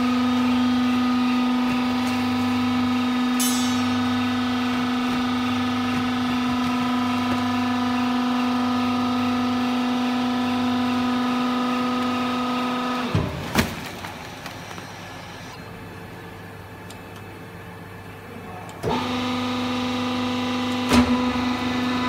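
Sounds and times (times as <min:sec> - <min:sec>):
hydraulic pump motor humming: 0:00.0 - 0:13.2, 0:18.7 - 0:22.0.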